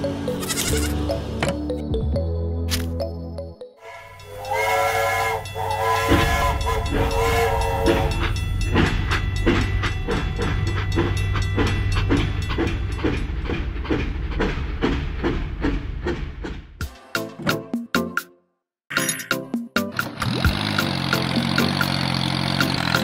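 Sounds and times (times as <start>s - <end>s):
toy steam whistle effect: 3.8s - 8.3s.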